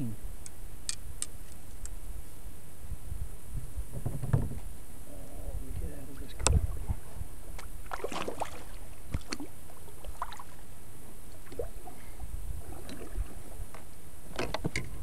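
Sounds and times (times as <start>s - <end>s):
paddle splashing in water: 7.8s - 10.7s, 11.3s - 13.7s.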